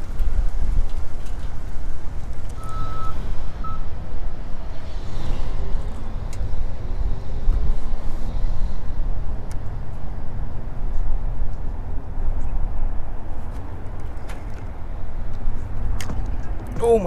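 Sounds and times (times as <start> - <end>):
wind buffeting microphone: 0.0 - 2.6.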